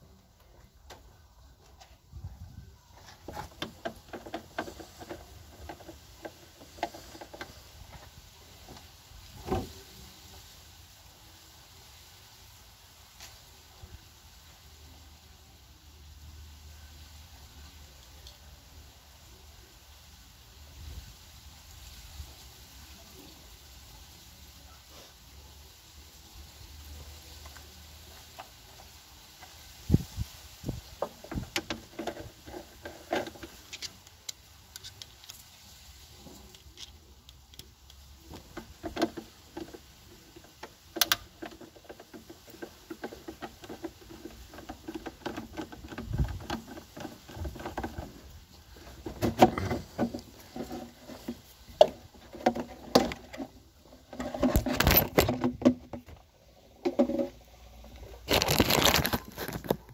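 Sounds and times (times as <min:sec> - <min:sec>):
knocks and handling noise: 0:00.0 - 0:10.0, 0:27.0 - 0:59.9
rustling: 0:00.0 - 0:59.9.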